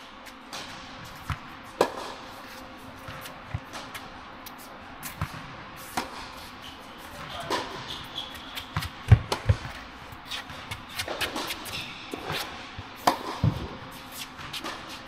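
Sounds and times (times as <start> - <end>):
tennis ball hitting rackets: 0.5 - 2.2, 7.2 - 13.7
ball bouncing on hard court: 3.0 - 4.0, 5.0 - 6.4, 7.1 - 13.8.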